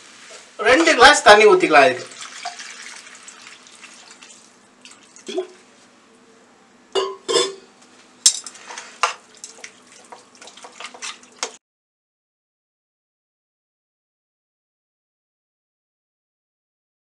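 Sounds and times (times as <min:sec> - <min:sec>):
water poured into pan: 0:02.0 - 0:05.6.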